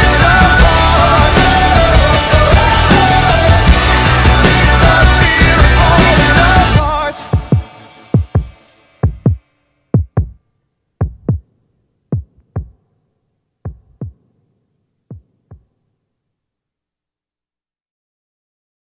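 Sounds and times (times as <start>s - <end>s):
heartbeat thumps: 7.3s - 9.4s, 10.0s - 10.4s, 11.0s - 11.4s, 12.1s - 12.8s, 13.6s - 14.2s, 15.1s - 15.7s.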